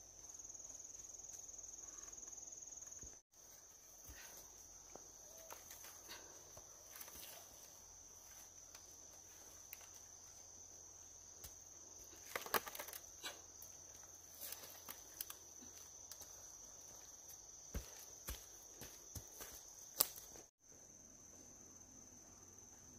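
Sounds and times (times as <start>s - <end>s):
insects trilling: 0.0s - 22.9s.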